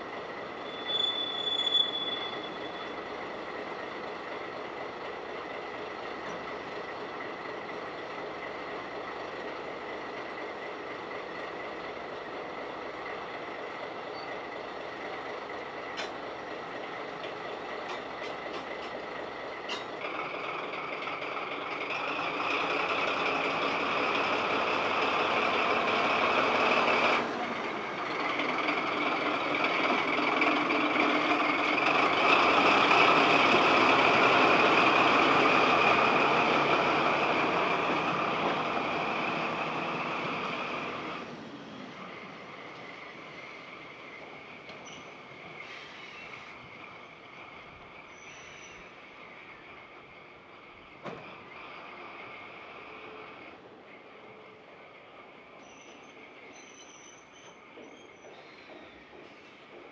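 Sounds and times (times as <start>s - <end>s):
locomotive diesel engine running: 0.0s - 45.8s.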